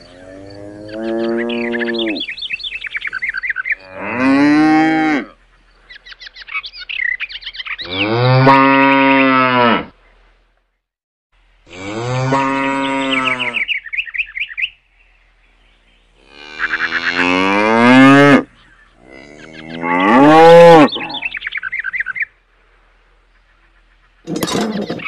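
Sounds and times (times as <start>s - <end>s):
cattle mooing: 0.2s - 2.2s, 11.7s - 13.6s, 16.2s - 21.3s
high bird chirps: 5.8s - 8.2s, 12.8s - 17.2s, 20.8s - 22.4s.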